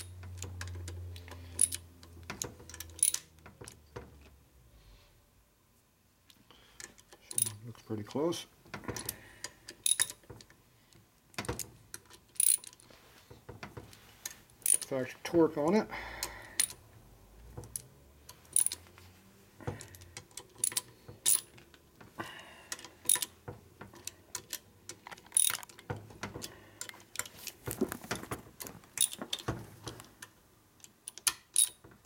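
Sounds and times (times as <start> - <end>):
ratchet wrench clicking: 0.0 - 2.1, 16.6 - 16.8, 18.5 - 18.8, 19.9 - 21.5, 22.7 - 23.3, 24.0 - 25.7, 30.8 - 31.8
metal clinks: 18.5 - 18.8.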